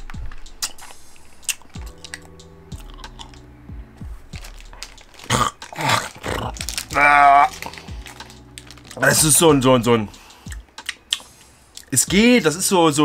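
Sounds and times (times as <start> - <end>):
person chewing and crunching sweet: 0.6 - 3.5, 4.1 - 9.2, 10.5 - 11.9.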